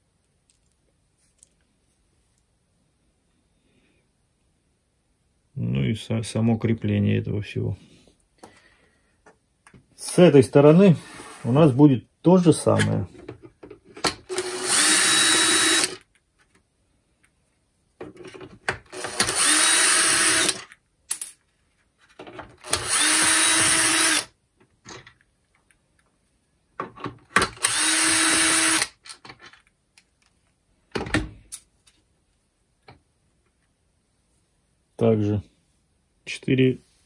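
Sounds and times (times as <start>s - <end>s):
cordless drill running: 14.3s - 16.0s, 18.9s - 20.6s, 22.6s - 24.3s, 27.6s - 29.0s.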